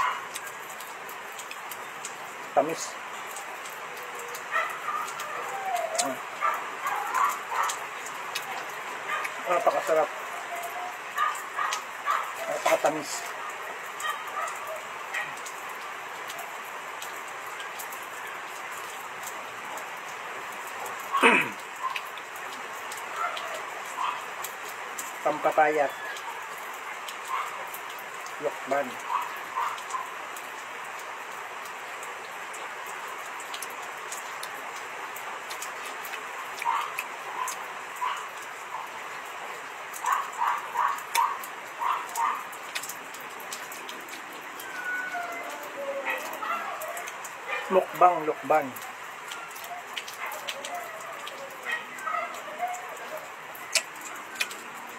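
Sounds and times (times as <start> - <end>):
dog barking: 0.0 - 0.5, 4.2 - 15.5, 21.0 - 22.1, 23.0 - 24.4, 25.9 - 27.8, 28.7 - 30.2, 36.6 - 39.0, 40.0 - 42.6, 44.6 - 48.7, 49.3 - 54.4.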